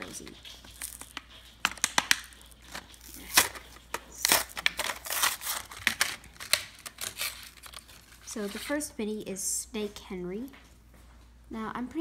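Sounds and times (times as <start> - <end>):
cardboard tearing off plastic pack: 1.7 - 8.8.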